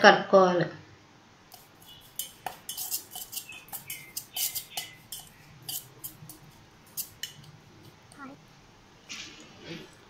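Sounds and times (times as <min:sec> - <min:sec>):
metal spoon scraping steel bowl: 0:01.5 - 0:08.0.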